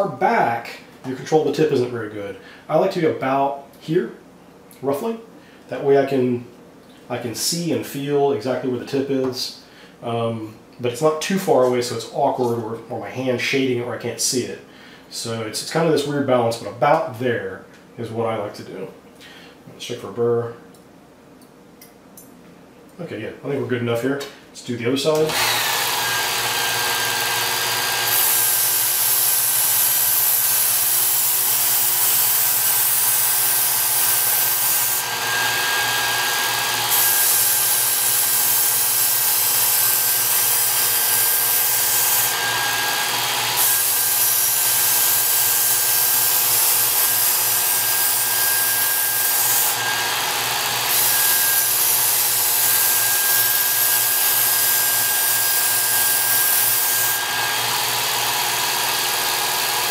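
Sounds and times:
belt sharpener whining: 25.2s - 59.9s
knife grinding on abrasive belt: 25.5s - 59.9s.

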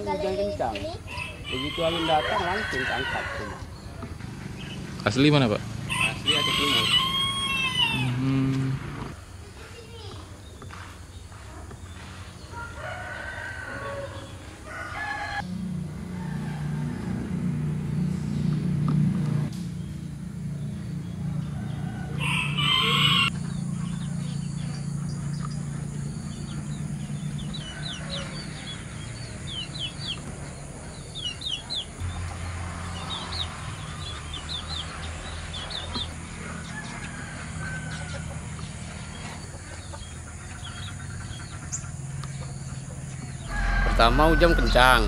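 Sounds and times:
small birds chirping: 0.0s - 15.4s, 17.9s - 43.7s
rooster crowing: 1.1s - 3.8s, 5.9s - 8.3s, 12.5s - 17.9s, 21.4s - 23.4s, 26.6s - 30.2s, 33.0s - 39.4s, 43.4s - 45.0s
steady low hum: 15.4s - 22.6s, 23.3s - 32.5s.

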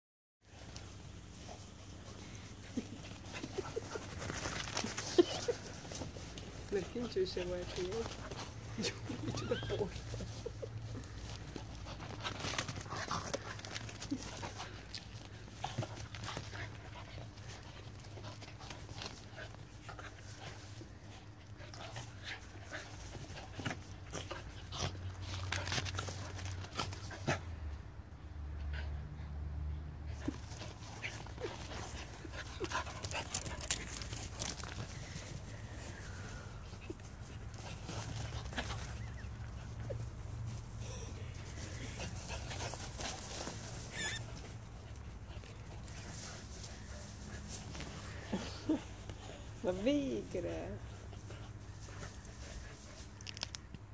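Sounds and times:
dogs scuffling on grass: 0.4s - 27.5s, 30.1s - 53.9s
dogs panting: 0.5s - 27.8s, 30.0s - 53.8s
faint short squeaks: 43.9s - 44.5s.

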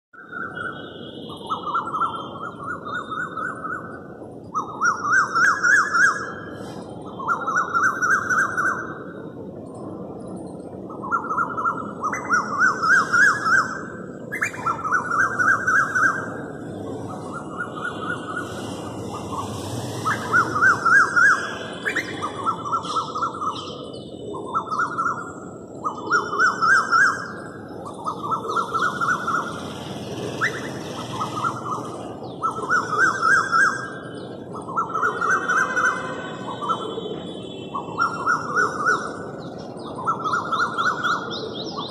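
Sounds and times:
small birds chirping: 10.3s - 41.9s
cuckoo crying: 17.2s - 29.6s, 30.4s - 39.3s.

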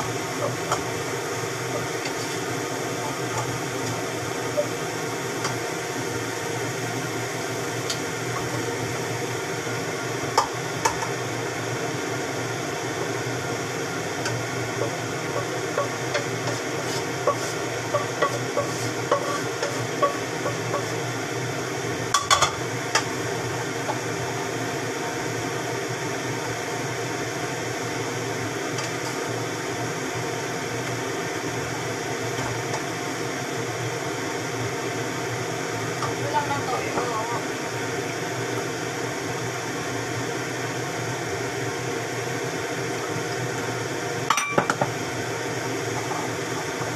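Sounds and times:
steady hum: 0.0s - 46.9s
wooden spatula scraping frying pan: 15.8s - 20.2s.

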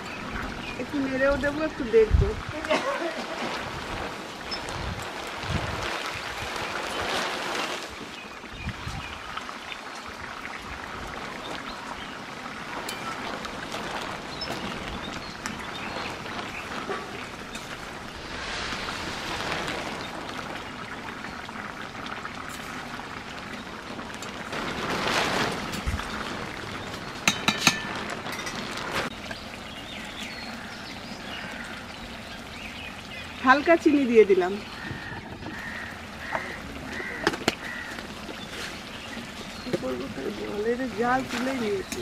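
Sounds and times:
curry bubbling in metal pan: 7.9s - 42.0s.

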